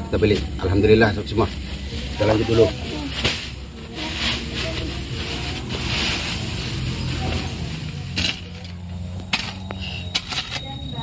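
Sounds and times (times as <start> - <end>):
woven sack rustling: 0.1 - 8.6.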